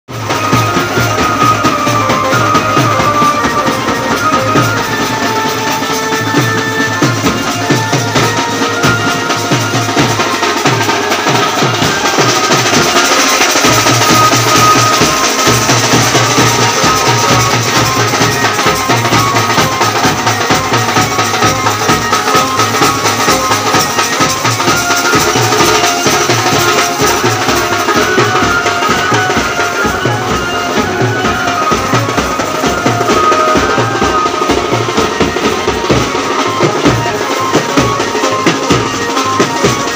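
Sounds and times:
large drums beaten with sticks: 0.1s - 39.9s.

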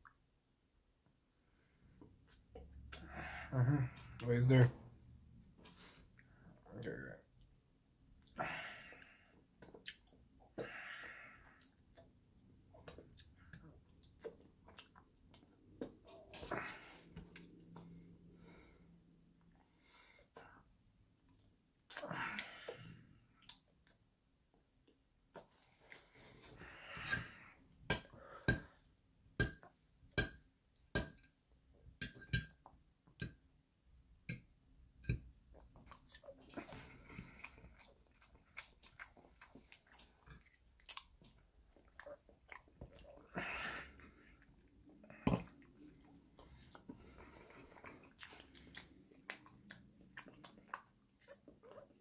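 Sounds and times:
soft chewing: 9.0s - 10.8s, 11.5s - 28.9s, 34.3s - 52.0s
wet lip and tongue clicks: 9.6s - 10.2s.

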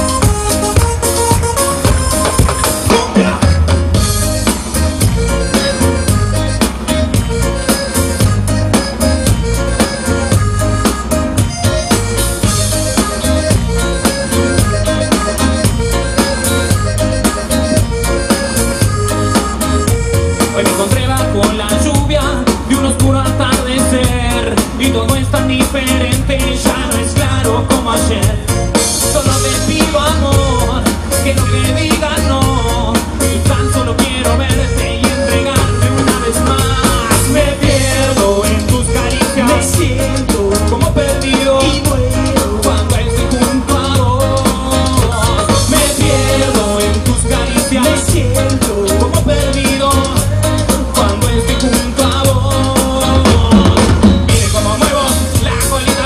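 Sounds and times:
person singing: 0.0s - 4.1s, 20.1s - 56.0s
rock band playing live: 0.0s - 56.0s
steady drum beat: 0.0s - 56.0s.

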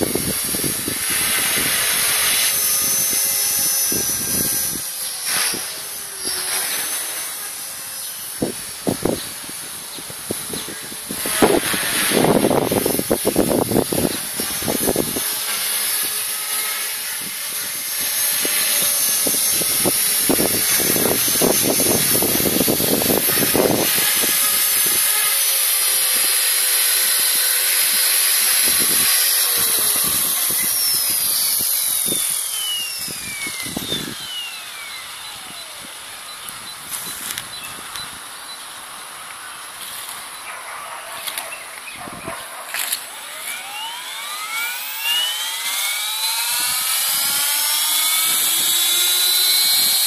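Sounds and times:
wind buffeting on microphone: 0.0s - 6.4s, 8.3s - 16.2s, 17.0s - 25.2s, 27.9s - 38.2s, 46.4s - 50.0s
rc helicopter motor whine: 0.0s - 50.0s.

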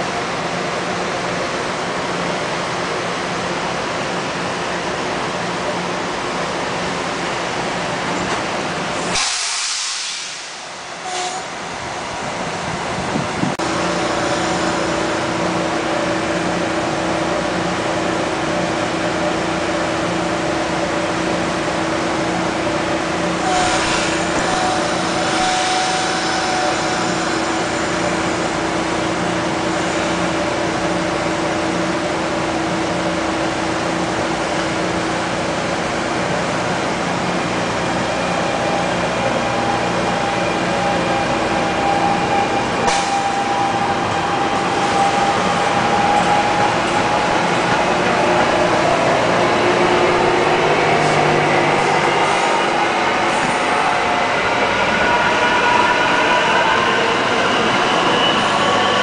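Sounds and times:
electric train hum: 0.0s - 59.0s
train wheels on rail: 0.0s - 59.0s
high-pitched hiss and squeal: 52.2s - 59.0s.

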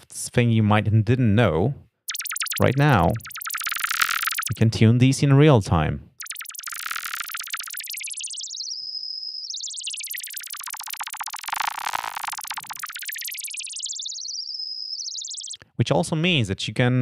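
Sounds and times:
synth filtered noise chirping: 2.1s - 4.6s, 6.2s - 15.6s.

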